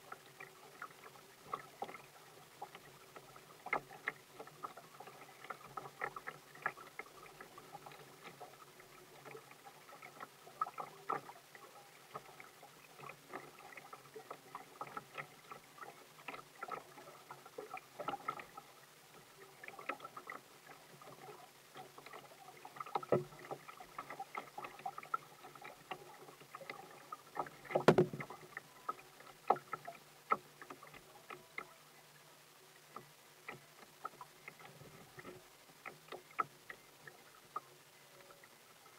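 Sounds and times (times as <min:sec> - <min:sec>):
paddle splashes and drips: 0:00.0 - 0:38.9
waves slapping against hull: 0:22.0 - 0:28.6
loud thump: 0:27.8 - 0:28.2.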